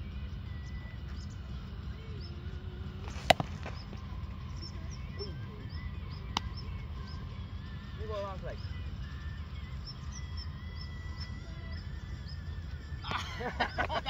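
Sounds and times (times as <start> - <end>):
low rumble: 0.0 - 13.1
faint bird chirps: 0.0 - 13.8
bat hitting ball crack: 3.0 - 4.0.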